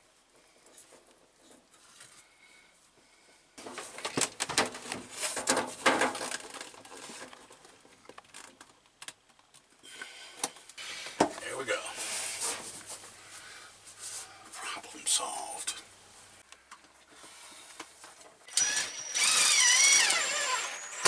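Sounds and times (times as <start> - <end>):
plastic pipe fittings scraping and knocking: 3.6 - 9.6.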